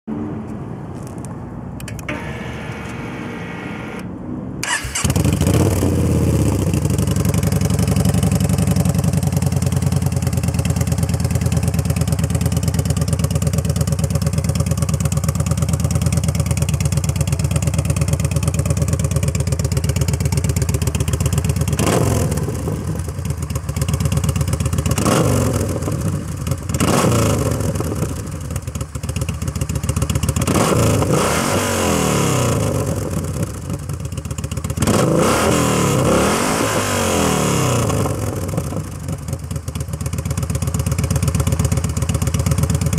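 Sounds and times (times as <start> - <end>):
engine revving: 2.1 - 8.4, 21.7 - 23.0, 24.8 - 28.2, 30.4 - 33.6, 34.8 - 38.8
motorcycle starter cranking: 4.6 - 5.6
motorcycle engine idling loudly: 5.0 - 42.9.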